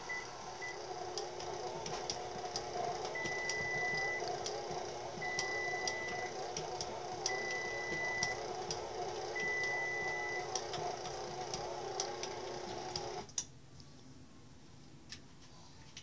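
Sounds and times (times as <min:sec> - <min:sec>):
stand mixer motor hum: 0:00.0 - 0:13.3
dough knocking and slapping in bowl: 0:01.4 - 0:09.5.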